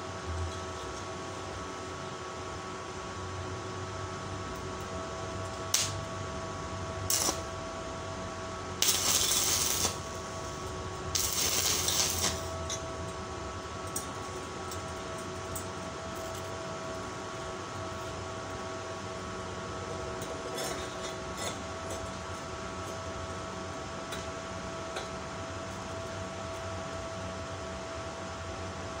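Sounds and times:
steady hum: 0:00.0 - 0:29.0
welding arc crackling and hissing: 0:05.4 - 0:06.1, 0:07.0 - 0:07.8, 0:08.7 - 0:12.8.

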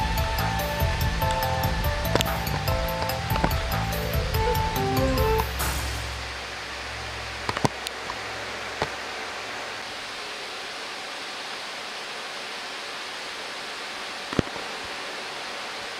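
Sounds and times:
restaurant kitchen rushing noise: 0:00.0 - 0:09.1.

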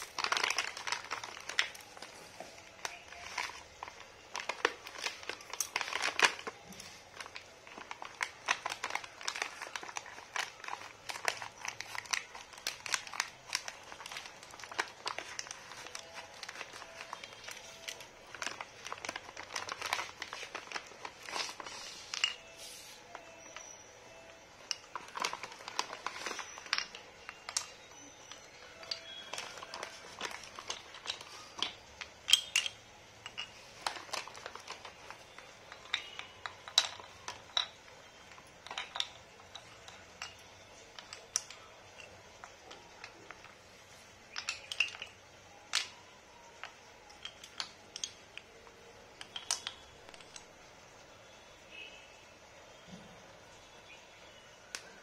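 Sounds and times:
plastic packet crinkling: 0:00.0 - 0:50.5
pencil sticks tapping on floor: 0:24.6 - 0:43.6, 0:44.3 - 0:50.5.

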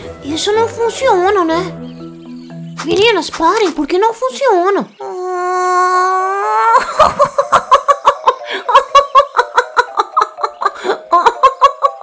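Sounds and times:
cartoon voice giggling: 0:05.2 - 0:12.0.

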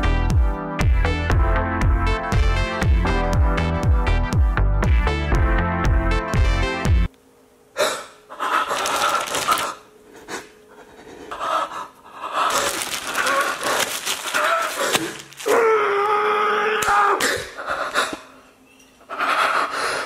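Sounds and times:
electronic music: 0:00.0 - 0:07.1
person panting and gasping: 0:07.8 - 0:15.4, 0:17.2 - 0:18.4, 0:19.1 - 0:20.0.

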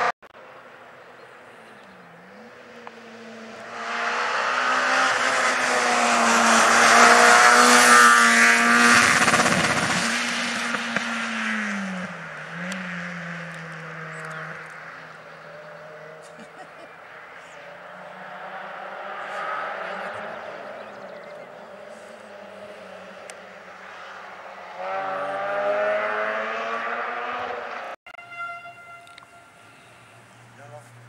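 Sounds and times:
rally car engine revving past: 0:02.2 - 0:16.3, 0:17.6 - 0:28.0.

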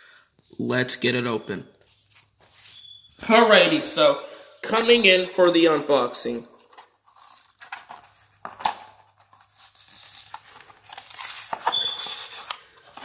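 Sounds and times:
toy packaging being torn: 0:06.6 - 0:13.0.

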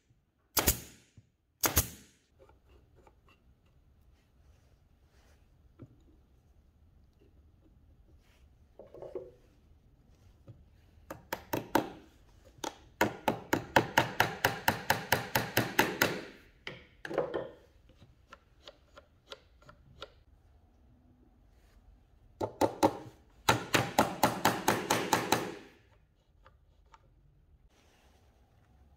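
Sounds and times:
small hammer tapping wood: 0:11.1 - 0:12.0.

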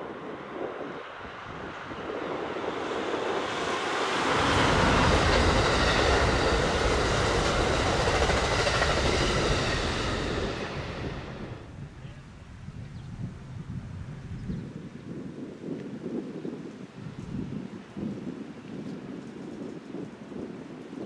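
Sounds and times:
low rumble of train: 0:00.0 - 0:15.0
train wheels on rails: 0:01.1 - 0:11.7.

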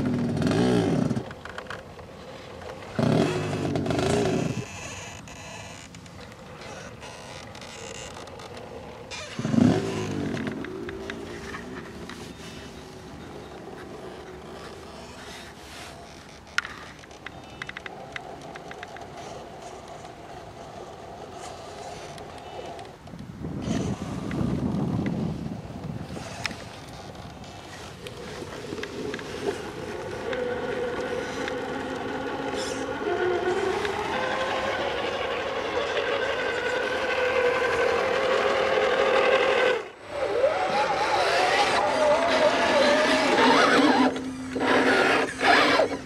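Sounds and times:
electric motor and gearbox whining: 0:02.9 - 0:20.1, 0:26.2 - 0:46.0
electric motor whine: 0:28.5 - 0:46.0.

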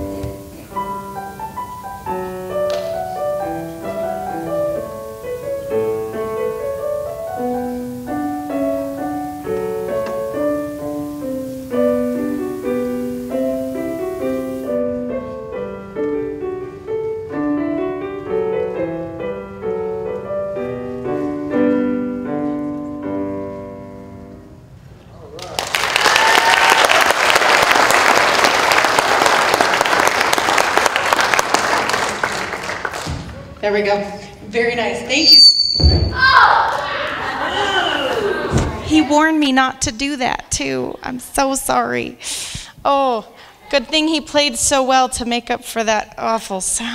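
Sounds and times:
solo digital piano: 0:00.0 - 0:24.6.

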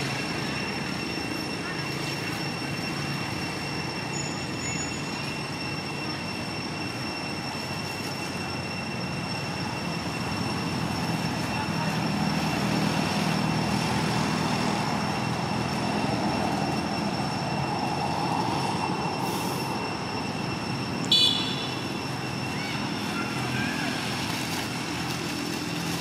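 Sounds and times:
thin high whining tones: 0:00.0 - 0:26.0.

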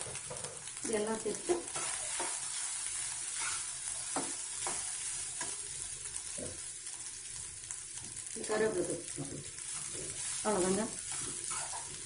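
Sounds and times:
rice sizzling in hot fat: 0:00.0 - 0:12.0
metal spoon scraping a pan: 0:01.5 - 0:02.6, 0:03.3 - 0:05.6, 0:09.1 - 0:12.0.

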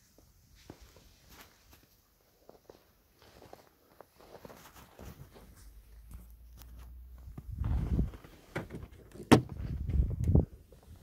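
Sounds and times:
muffled rustling thumps: 0:07.2 - 0:11.0.

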